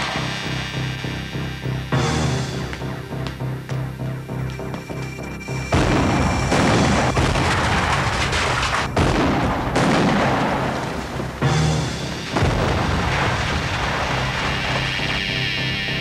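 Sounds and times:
loud explosions: 0:00.0 - 0:01.1, 0:05.7 - 0:15.7
dramatic background music: 0:00.0 - 0:16.0
rumble of fire: 0:00.0 - 0:16.0.

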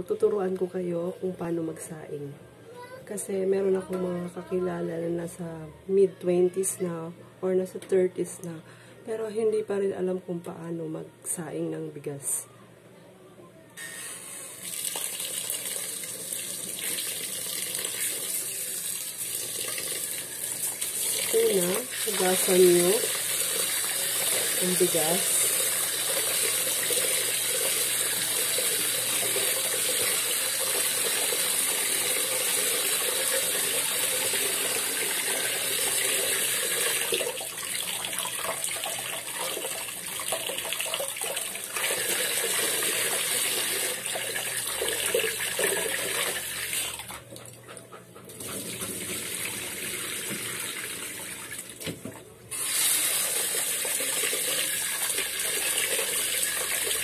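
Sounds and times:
tap water running into pot: 0:14.6 - 0:47.0, 0:48.7 - 0:57.0.

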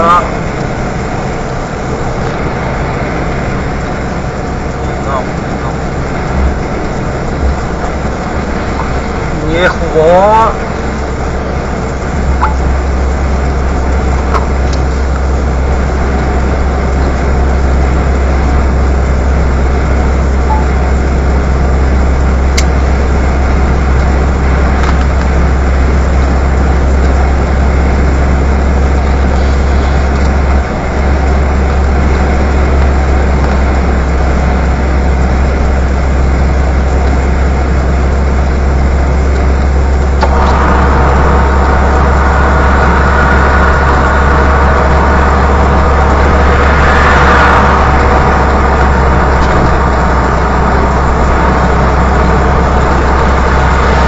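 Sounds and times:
truck engine rumble: 0:00.0 - 0:54.0
tyres hissing on wet road: 0:23.2 - 0:54.0.

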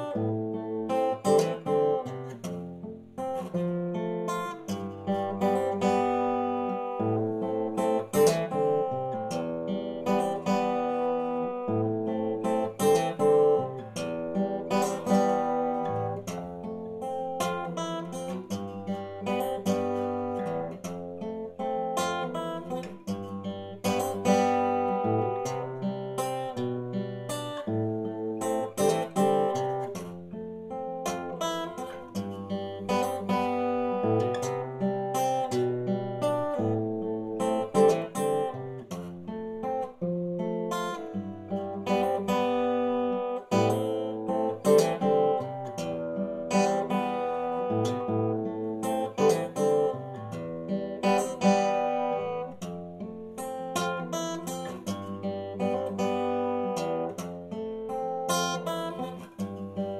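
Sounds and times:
fingerpicked acoustic guitar: 0:00.0 - 0:59.9.

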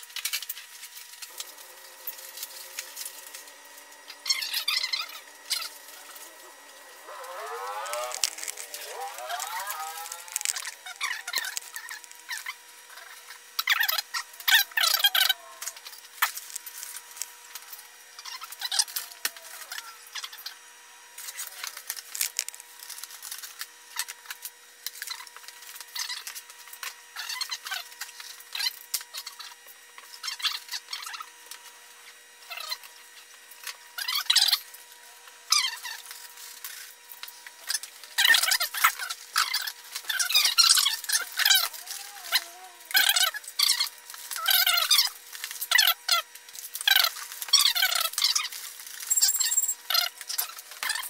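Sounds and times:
foam rubbing and crinkling: 0:00.6 - 0:20.3.

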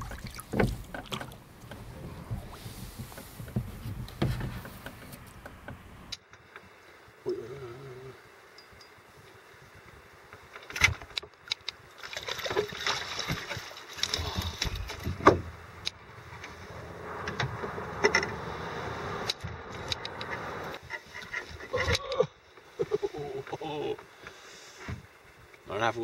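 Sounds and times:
water splashing: 0:00.0 - 0:03.5, 0:11.9 - 0:21.2.

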